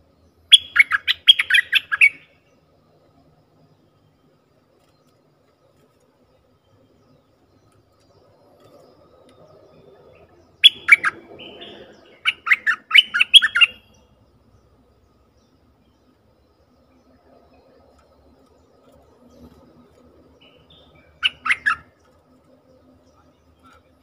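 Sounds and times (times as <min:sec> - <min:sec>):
bird whistled calls: 0:00.5 - 0:02.3, 0:10.6 - 0:14.0, 0:20.4 - 0:22.0.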